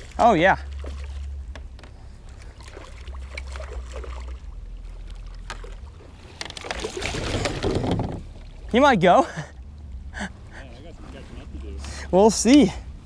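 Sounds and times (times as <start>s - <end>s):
steady low rumble: 0.0s - 13.0s
fish splashing at water surface: 2.4s - 7.9s.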